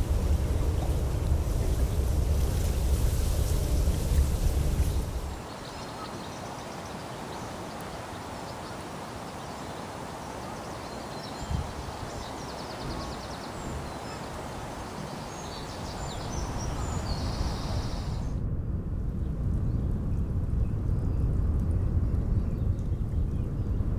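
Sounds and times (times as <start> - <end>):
wind noise: 0.0 - 5.5, 11.4 - 23.9
small birds chirping: 0.0 - 18.3.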